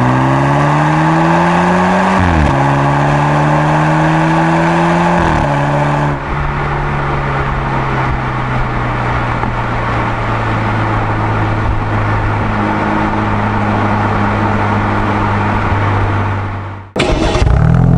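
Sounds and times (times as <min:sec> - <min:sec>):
car exhaust drone: 0:00.0 - 0:17.9.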